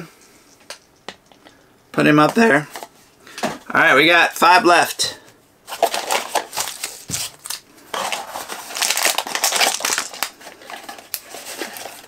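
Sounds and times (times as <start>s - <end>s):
cardboard packaging tearing: 5.7s - 12.0s
crinkling: 5.7s - 12.0s.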